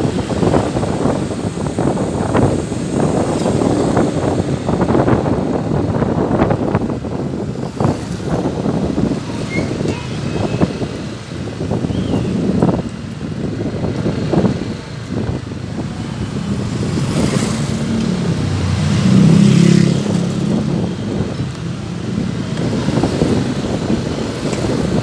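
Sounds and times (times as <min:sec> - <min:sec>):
wind rumbling on microphone: 0:00.0 - 0:25.0
motorcycle engine drone: 0:10.4 - 0:25.0.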